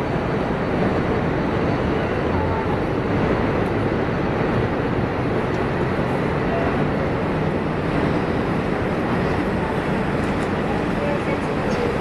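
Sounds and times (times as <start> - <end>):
station platform hum and rumble: 0.0 - 12.0.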